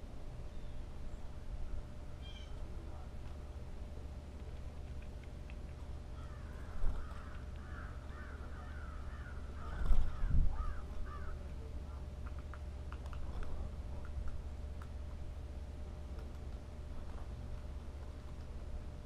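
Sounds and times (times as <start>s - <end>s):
blue jay harsh calls: 2.1s - 2.6s, 6.1s - 11.4s
wings fluttering: 4.4s - 11.4s, 12.2s - 15.2s, 16.0s - 18.8s.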